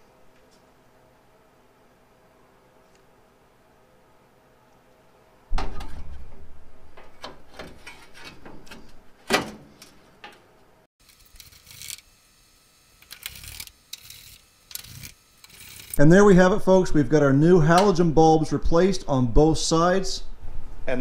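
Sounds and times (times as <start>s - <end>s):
metallic clicks and scrapes: 11.0s - 12.1s, 13.0s - 16.0s.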